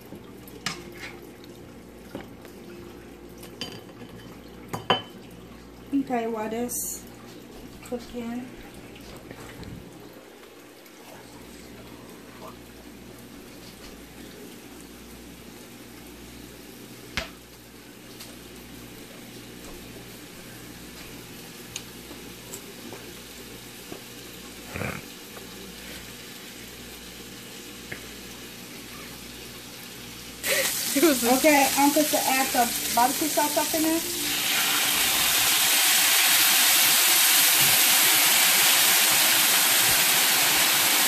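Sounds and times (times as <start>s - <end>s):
sausage sizzling in oil: 15.1s - 41.0s.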